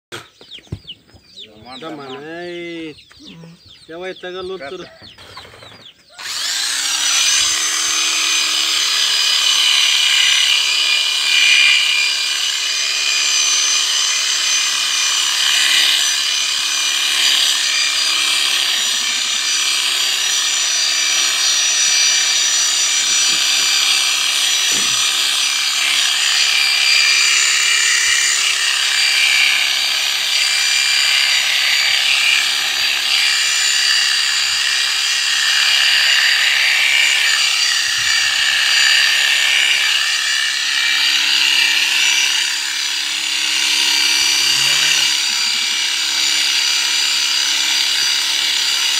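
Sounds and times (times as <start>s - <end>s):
electric clipper buzzing: 6.1s - 48.9s.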